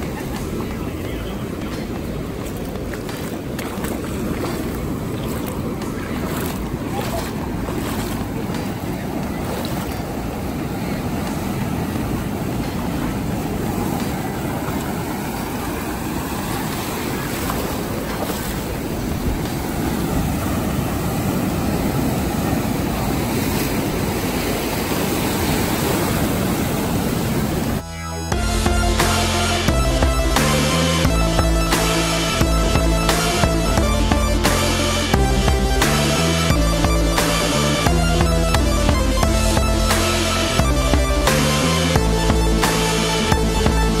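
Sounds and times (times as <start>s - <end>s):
ocean surf washing over rocks: 0.0s - 27.8s
electronic music: 27.8s - 44.0s.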